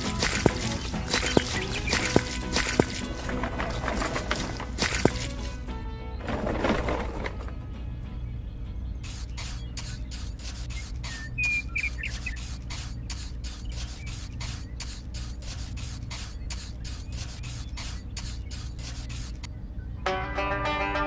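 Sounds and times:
high chirps: 0.0s - 3.2s, 9.0s - 19.5s.

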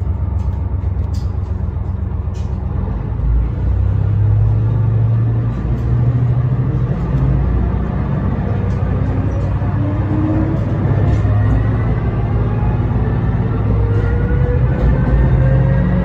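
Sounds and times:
diesel railcar engine: 0.0s - 16.0s.

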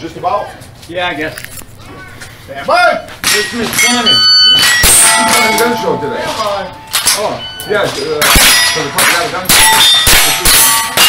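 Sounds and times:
steel target clanging: 3.2s - 11.0s.

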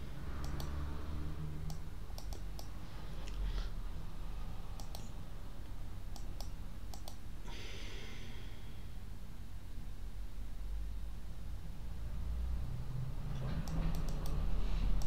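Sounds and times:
low steady hum: 0.0s - 15.0s
computer mouse clicking: 0.3s - 0.9s, 1.6s - 3.4s, 4.8s - 7.2s, 13.3s - 15.0s.

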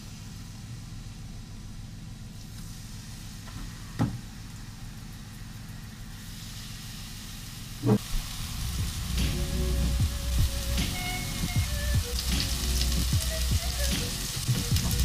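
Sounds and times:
fish sizzling in hot oil: 0.0s - 15.0s
background music: 8.2s - 15.0s.

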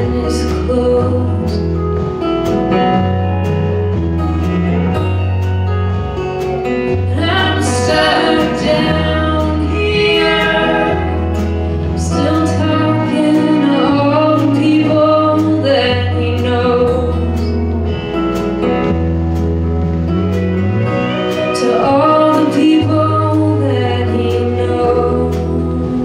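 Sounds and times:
woman singing lead: 0.0s - 1.8s, 6.7s - 17.8s, 21.0s - 26.0s
electric guitar: 0.0s - 26.0s
held bass notes: 0.0s - 26.0s
keyboard: 0.0s - 26.0s.

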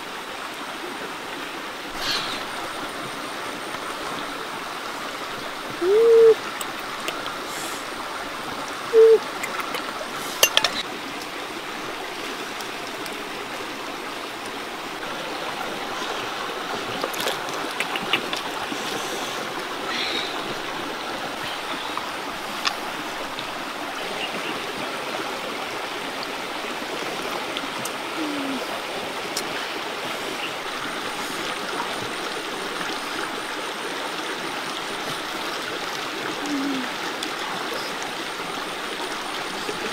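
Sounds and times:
running water: 0.0s - 39.9s
short pitched calls: 8.9s - 9.4s.

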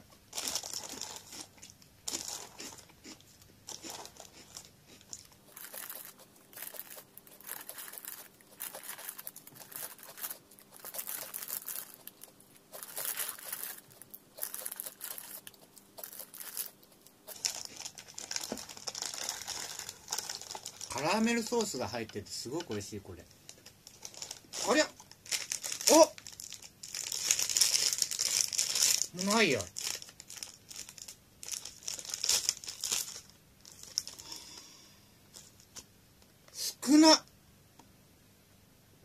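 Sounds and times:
crunchy snack chewing: 0.3s - 21.0s
snack bag crinkling: 0.3s - 21.7s, 23.4s - 34.5s.

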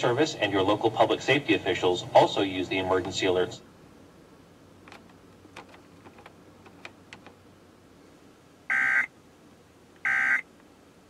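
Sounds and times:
digital data tone bursts: 8.7s - 9.1s.

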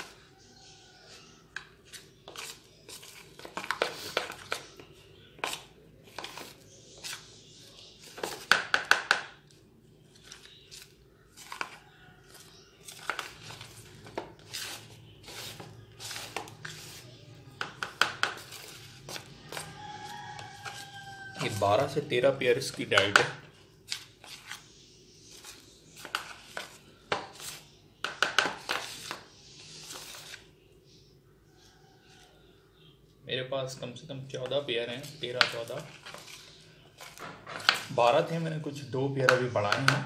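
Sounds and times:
metal spoon scraping a bowl: 11.3s - 17.2s.

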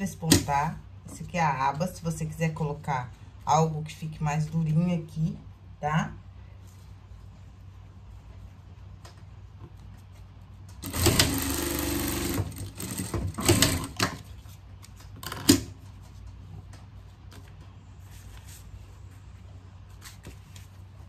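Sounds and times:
sewing machine stitching: 10.8s - 14.1s.

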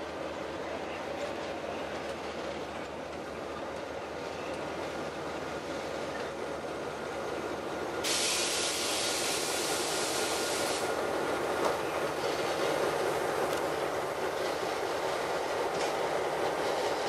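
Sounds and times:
diesel locomotives running: 0.0s - 17.0s
train rolling slowly: 0.0s - 17.0s
air hissing: 8.0s - 10.9s.

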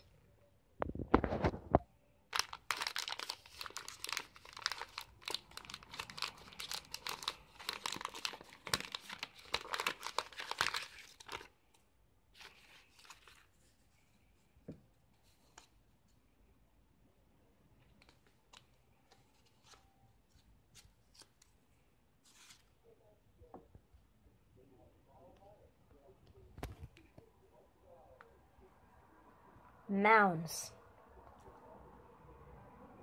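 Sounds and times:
plastic wrapper crinkling and tearing: 2.3s - 11.6s, 12.4s - 13.6s.

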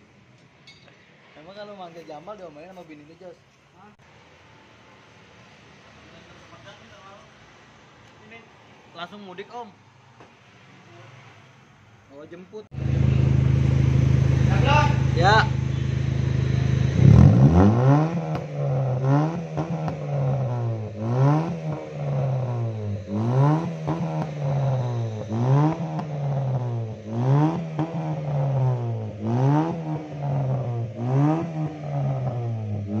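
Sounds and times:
car engine revving: 12.7s - 33.0s.

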